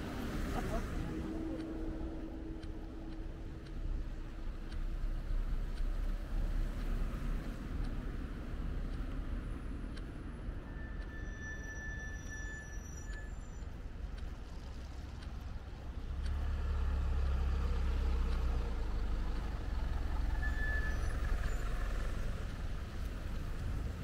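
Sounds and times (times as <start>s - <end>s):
traffic rumble: 0.0s - 24.0s.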